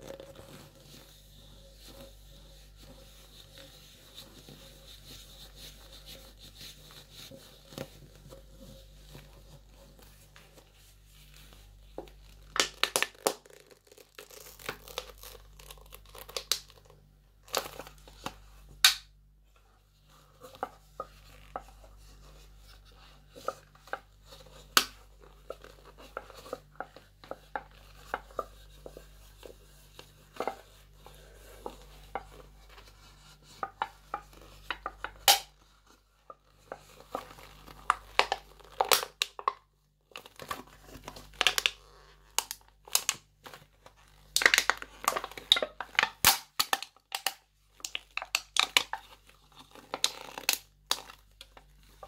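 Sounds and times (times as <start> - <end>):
metal can being crushed: 46.0 - 47.4.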